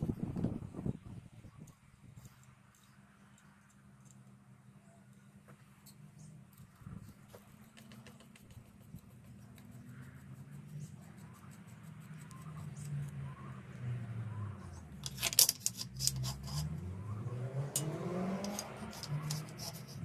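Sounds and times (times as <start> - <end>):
iron bolt clicking and scraping: 15.0 - 16.7, 17.8 - 20.0.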